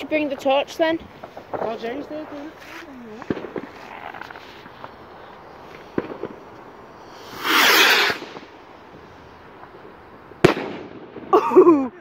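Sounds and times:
firework bang: 3.2 - 5.0, 5.8 - 6.4, 7.1 - 8.6, 10.4 - 11.4
firework rocket launching whoosh: 3.2 - 9.3.

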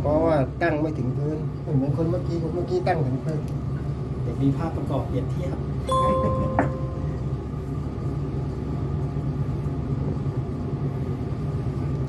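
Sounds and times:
short pure tone: 5.9 - 7.3.

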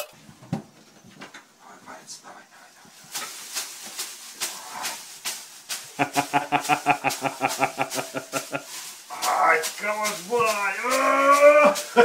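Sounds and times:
leafy whisk slapping a dog's body: 2.8 - 12.0.

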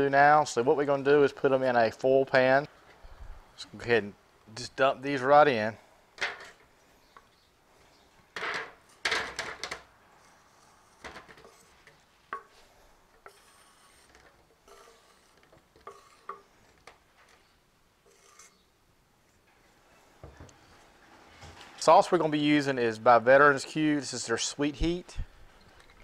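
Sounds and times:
spatula scraping cutting board: 10.2 - 16.5, 18.0 - 18.6.

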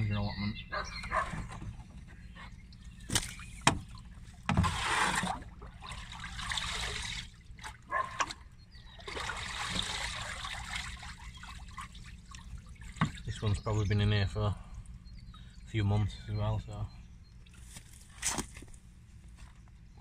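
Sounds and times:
liquid sloshing and trickling: 1.4 - 13.6.

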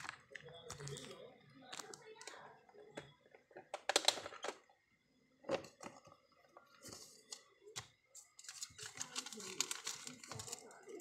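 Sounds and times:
plastic bags clicking and rustling: 8.3 - 11.0.

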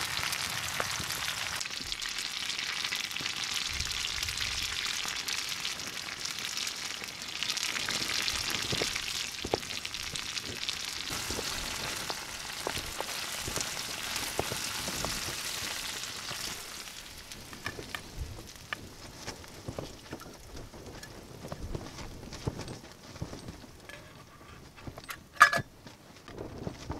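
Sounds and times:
food sizzling in frying pan: 0.0 - 21.0.

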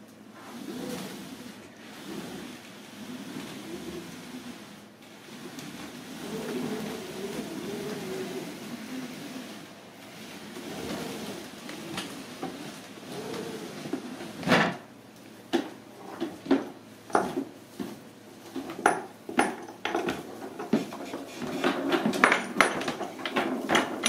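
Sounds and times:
dresser creaking and scraping: 5.2 - 14.9, 15.6 - 24.0.

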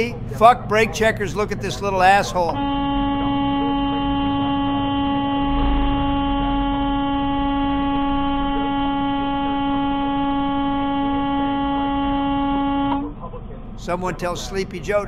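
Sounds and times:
truck air horn blast: 2.0 - 13.2.

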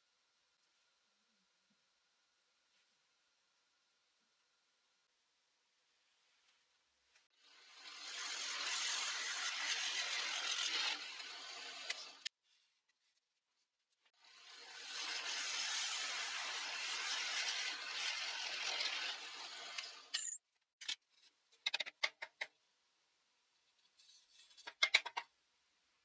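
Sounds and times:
drill press boring wood: 7.4 - 12.3.

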